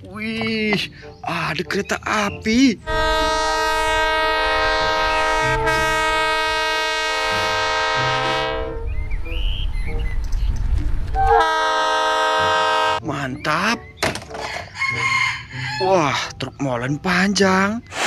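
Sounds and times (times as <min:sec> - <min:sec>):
locomotive air horn blasts: 0:02.8 - 0:08.9, 0:11.2 - 0:13.0.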